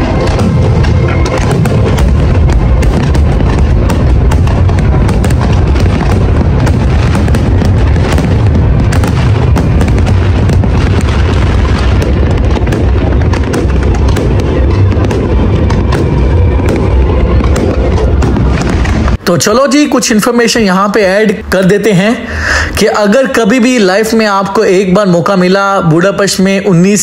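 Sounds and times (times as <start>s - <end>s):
firework shells bursting: 0.0s - 19.2s
low rumble: 0.0s - 19.2s.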